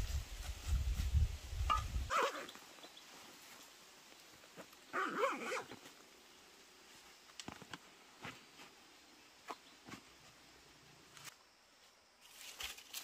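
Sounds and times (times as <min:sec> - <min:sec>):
animal calls: 0:02.1 - 0:02.6.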